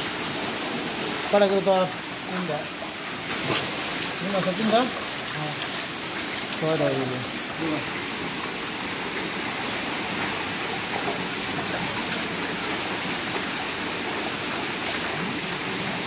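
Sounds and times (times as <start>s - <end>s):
water splashing in fish tank: 0.0s - 16.0s.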